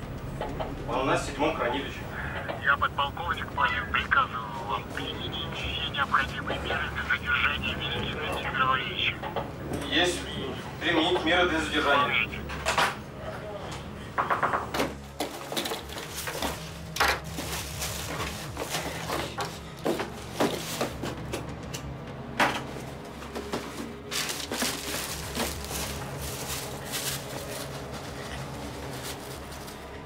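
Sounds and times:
low steady hum: 0.0 - 14.1
objects knocking and clattering: 14.2 - 26.0.

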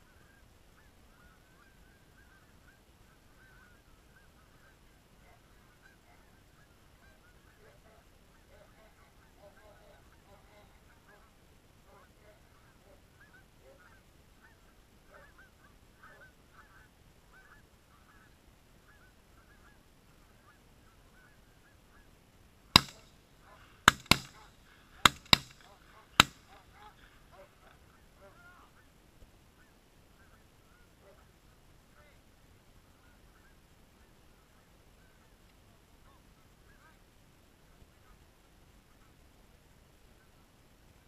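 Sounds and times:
geese honking: 0.1 - 22.2, 22.8 - 28.9
shotgun blasts: 22.8 - 23.1, 23.8 - 26.9.

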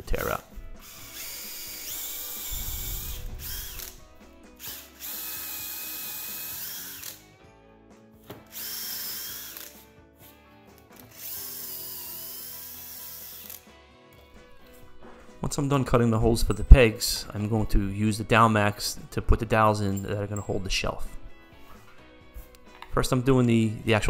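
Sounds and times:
power drill boring through plywood: 0.8 - 4.0, 4.6 - 7.2, 8.5 - 9.8, 11.1 - 13.6.

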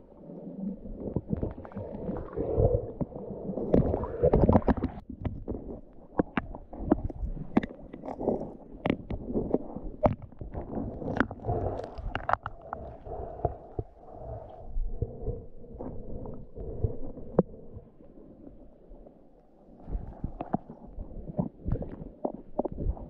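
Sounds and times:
underwater rumble: 0.0 - 23.0
underwater clicks and knocks: 1.0 - 17.6, 19.8 - 23.0.

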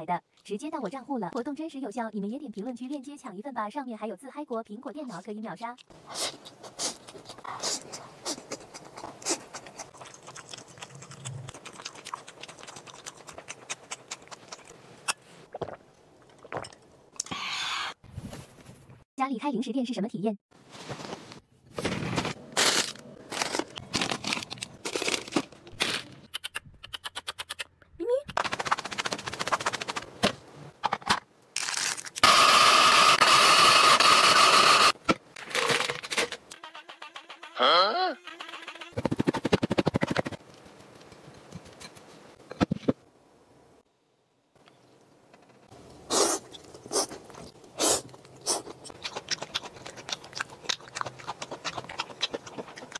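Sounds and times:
chewing crisp sausage: 6.1 - 14.8, 46.1 - 52.9
plastic packets crackling: 22.6 - 26.2, 31.6 - 32.2
ice machine grinding whir: 32.2 - 35.0.

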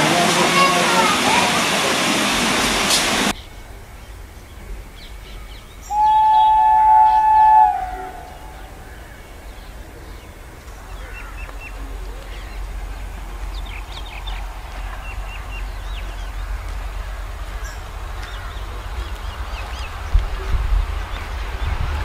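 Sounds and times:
hiss: 0.0 - 3.3
steady low rumble: 7.1 - 22.0.

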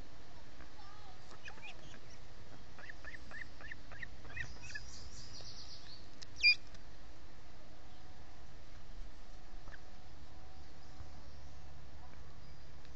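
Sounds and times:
ospreys chirping: 1.3 - 6.6.

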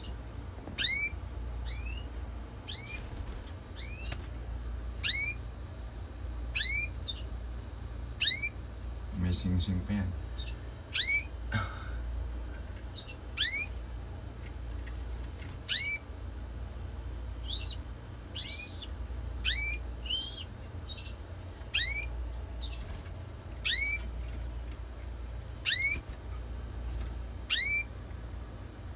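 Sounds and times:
soft bird chirps: 0.8 - 4.2, 5.0 - 5.4, 6.5 - 7.4, 8.2 - 8.6, 10.3 - 11.3, 12.8 - 13.8, 15.6 - 16.1, 17.4 - 24.5, 25.6 - 26.5, 27.5 - 28.0.

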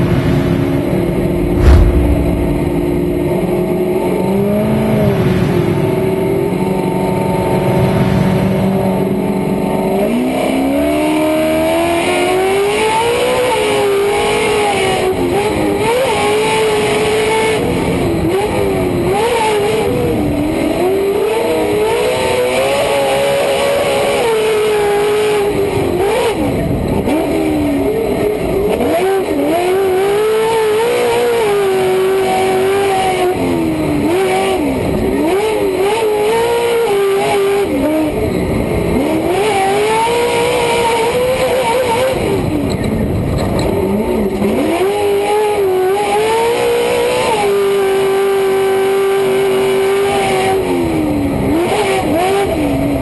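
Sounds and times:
loud thump: 1.2 - 3.9.

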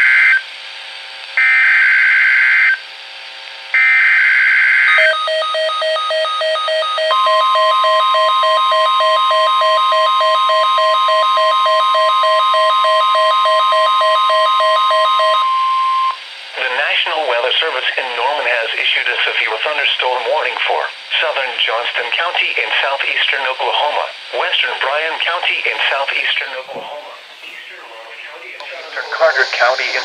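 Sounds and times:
steady warning alarm tone: 1.4 - 2.8, 3.8 - 16.2.

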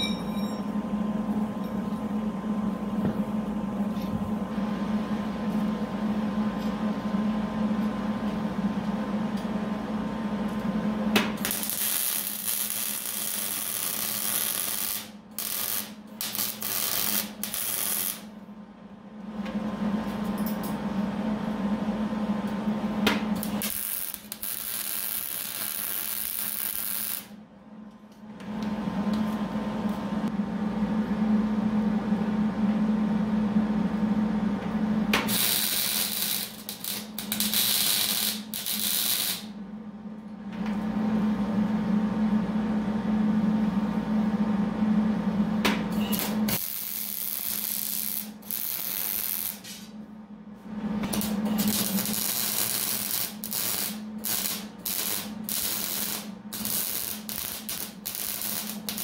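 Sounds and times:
steady low hum: 0.0 - 59.0
welding arc crackling: 11.4 - 18.3, 23.4 - 27.3, 35.3 - 39.5, 46.2 - 49.8, 51.1 - 59.0.

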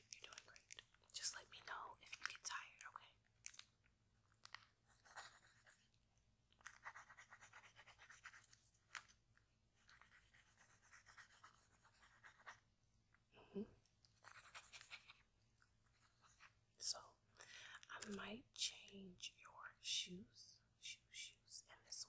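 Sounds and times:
pencil scratching on paper: 4.9 - 5.8, 6.7 - 8.6, 9.8 - 12.6, 14.2 - 15.2.

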